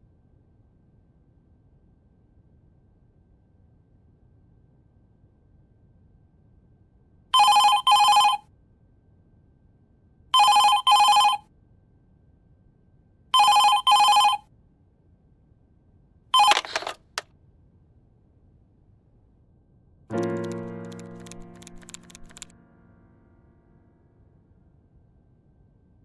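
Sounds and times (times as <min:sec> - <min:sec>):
desk telephone ringing: 0:07.4 - 0:08.4, 0:10.4 - 0:11.4, 0:13.4 - 0:14.4, 0:16.4 - 0:17.2, 0:20.4 - 0:22.5
handset clattering: 0:16.4 - 0:17.2
handset lifted click: 0:16.4 - 0:17.2.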